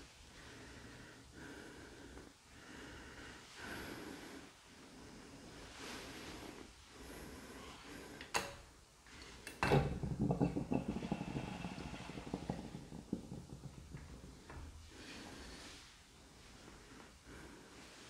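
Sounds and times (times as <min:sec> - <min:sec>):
scraping and rattling at drain: 0:08.3 - 0:15.8.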